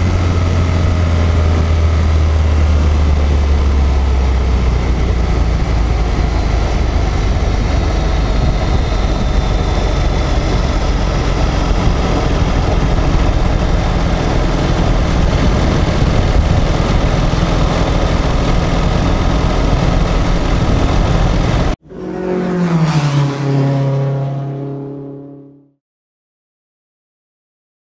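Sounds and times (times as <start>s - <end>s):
motorcycle engine and transmission: 0.0s - 23.7s
wind and road noise: 0.0s - 25.2s
tone falling in pitch: 21.8s - 25.7s.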